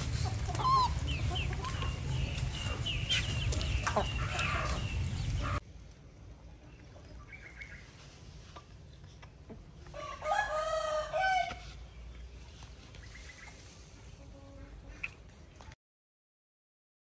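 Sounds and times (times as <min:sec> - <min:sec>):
rooster crowing: 0:10.0 - 0:11.6.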